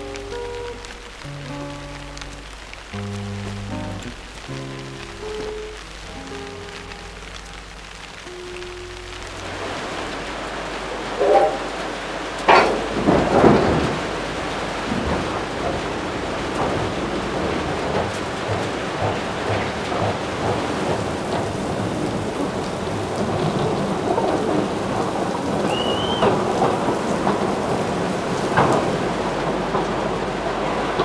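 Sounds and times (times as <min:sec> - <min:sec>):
rain falling: 0:00.0 - 0:31.0
thunderclap: 0:08.4 - 0:31.0
high whistle: 0:25.6 - 0:26.4.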